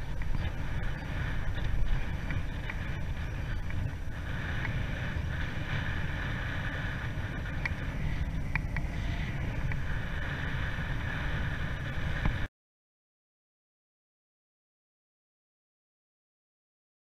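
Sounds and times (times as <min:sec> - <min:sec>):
faint ticks: 0:00.0 - 0:04.8, 0:07.4 - 0:08.9
wind rushing over microphone: 0:00.0 - 0:12.5.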